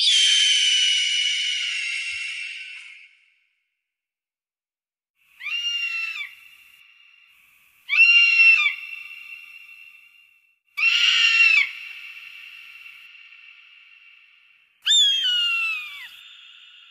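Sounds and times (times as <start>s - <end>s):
eagle screaming: 5.4s - 6.4s, 7.9s - 9.2s, 10.8s - 13.0s, 14.8s - 16.6s.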